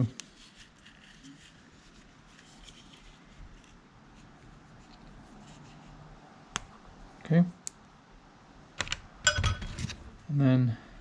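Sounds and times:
tape rustling and crinkling: 0.0 - 6.0.

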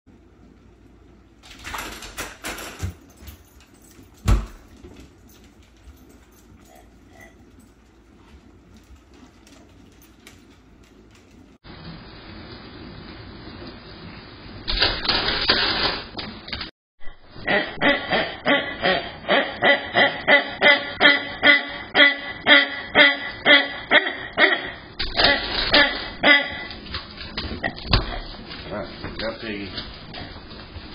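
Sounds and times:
door rattling and scraping: 1.5 - 5.8
heavy door thump: 4.2 - 4.7.

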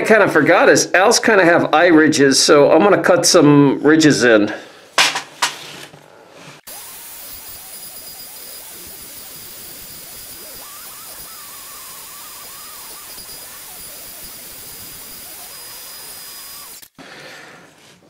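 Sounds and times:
rotary tool high whine: 6.6 - 17.0.

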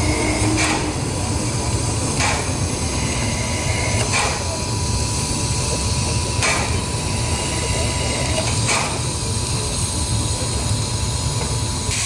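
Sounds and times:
thin steady whine: 0.0 - 12.0
sharp mechanical clank: 0.4 - 1.0, 2.2 - 2.6, 4.0 - 4.6, 6.4 - 6.8, 8.4 - 9.1.

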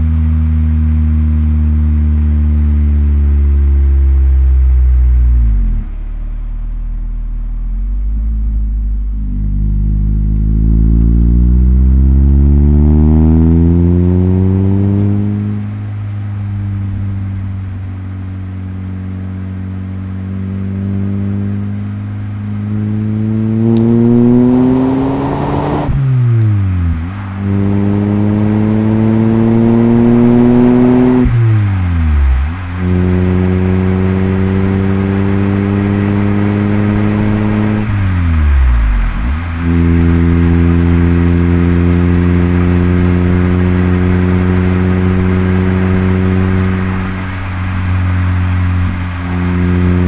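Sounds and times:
car engine revving through gears: 8.2 - 15.8, 19.0 - 50.0.

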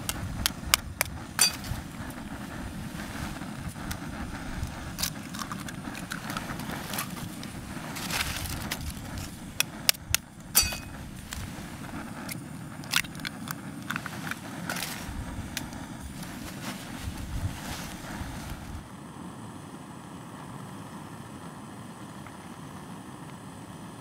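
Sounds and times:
steady rushing noise: 0.0 - 19.2.

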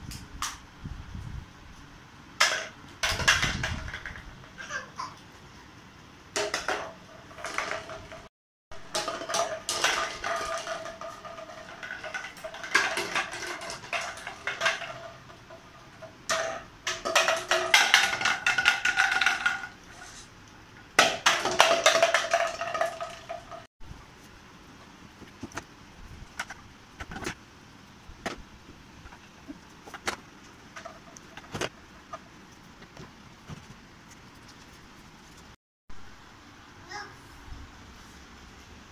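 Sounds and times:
plastic bottles clattering on floor: 2.4 - 4.4, 6.4 - 8.3, 8.9 - 20.2, 21.0 - 23.7, 29.8 - 32.2.

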